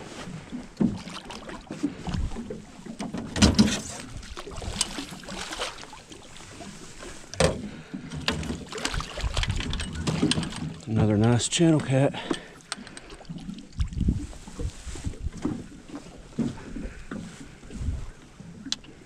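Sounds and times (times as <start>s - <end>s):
net knocking against boat: 7.4s - 10.8s.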